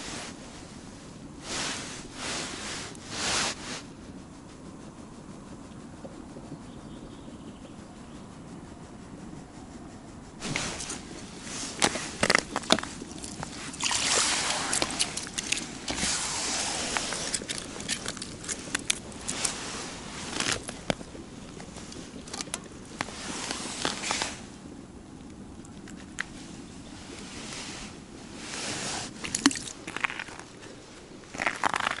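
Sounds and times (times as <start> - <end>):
rustling of jacket sleeves: 10.3 - 24.6, 26.3 - 29.9
fish slapping on ice: 11.8 - 19.6, 29.2 - 30.4.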